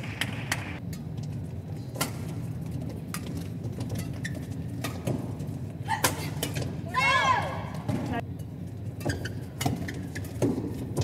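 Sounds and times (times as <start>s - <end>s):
low hall hum: 0.0s - 11.0s.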